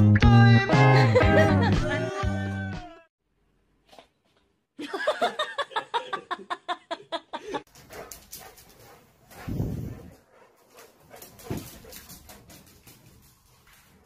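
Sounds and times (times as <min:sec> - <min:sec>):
rustling and knocks: 0:11.2 - 0:14.0.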